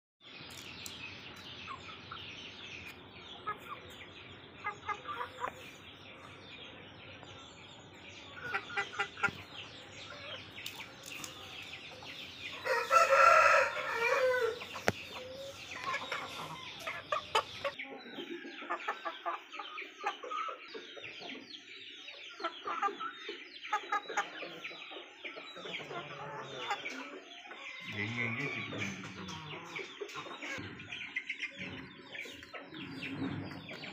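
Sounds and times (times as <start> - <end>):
chickens clucking: 0.4 - 33.9
rooster crowing: 12.6 - 14.7.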